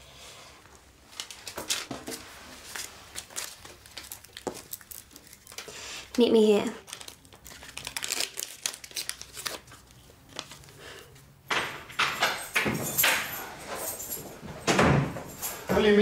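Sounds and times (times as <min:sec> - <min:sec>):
packaging crinkling and tearing: 0:01.1 - 0:10.8.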